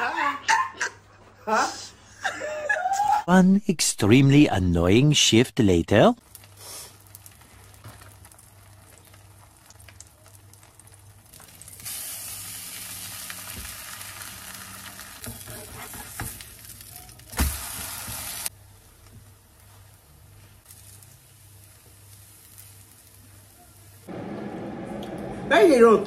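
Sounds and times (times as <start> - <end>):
food sizzling in a pan: 6.2 - 18.6, 19.6 - 25.0.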